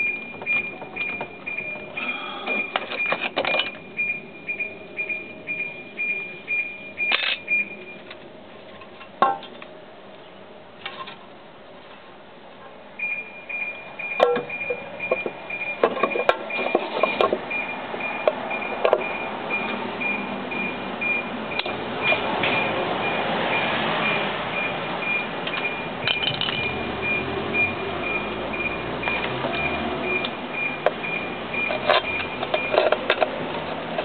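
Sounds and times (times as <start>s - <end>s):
faint high beep: 0.0s - 8.0s
metal tools clinking and knocking: 25.5s - 26.7s.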